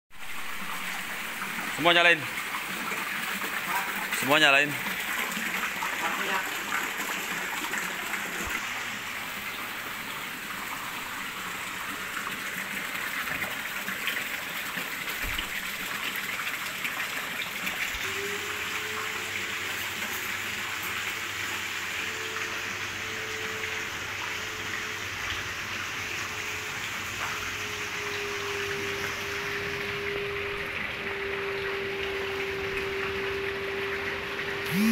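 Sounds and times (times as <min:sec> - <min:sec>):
water jets splashing into pool: 0:00.1 - 0:34.9
steady hum: 0:28.0 - 0:34.9.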